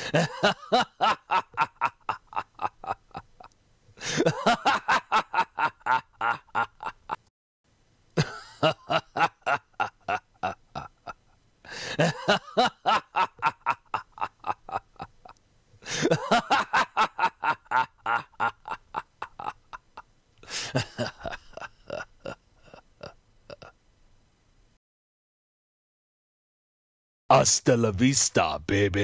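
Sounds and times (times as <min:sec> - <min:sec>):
person laughing: 0:00.0 - 0:07.2, 0:08.2 - 0:23.7.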